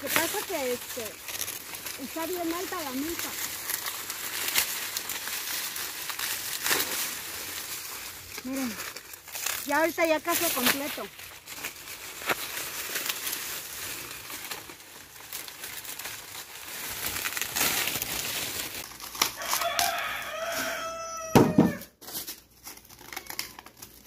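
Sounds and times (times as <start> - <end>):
dry corn stalks crackling: 0.0 - 24.0
rooster crowing: 19.3 - 21.9.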